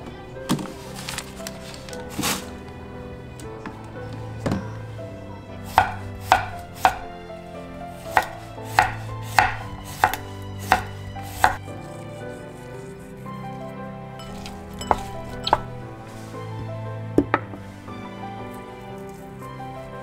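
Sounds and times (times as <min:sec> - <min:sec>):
knife knocking on cutting board: 0:05.8 - 0:07.0, 0:08.2 - 0:11.6.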